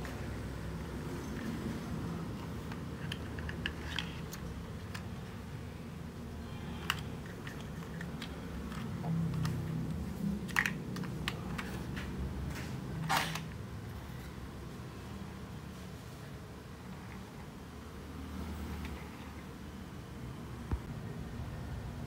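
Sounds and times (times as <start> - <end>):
plastic toy parts clicking: 2.7 - 5.1, 10.4 - 11.8.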